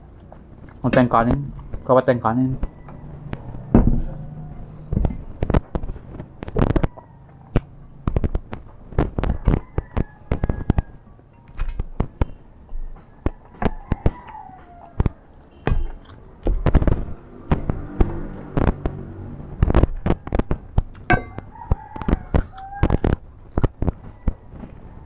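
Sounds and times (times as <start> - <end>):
dishes clinking on steel bowls: 21.1 - 21.4.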